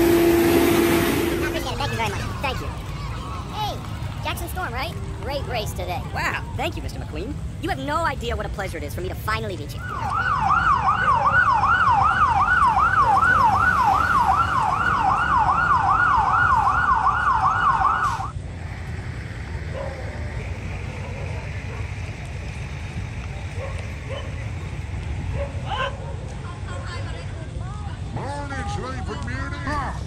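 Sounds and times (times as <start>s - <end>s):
fire engine siren yelping: 9.7s - 18.4s.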